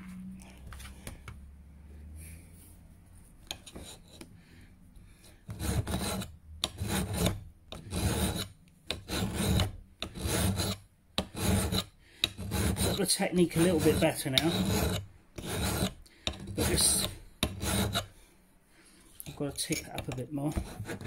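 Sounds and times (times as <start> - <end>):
file rasping on steel: 3.5 - 4.3, 5.1 - 18.2, 19.2 - 21.0.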